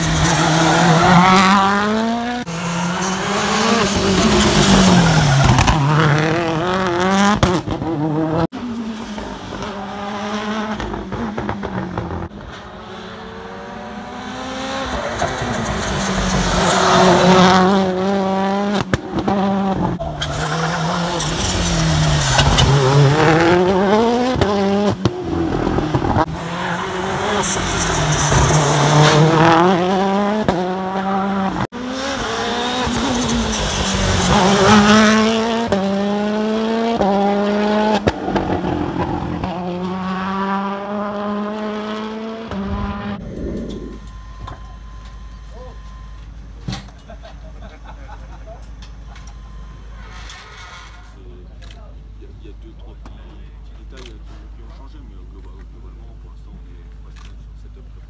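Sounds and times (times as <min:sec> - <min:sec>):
rally car engine revving: 0:00.0 - 0:46.1.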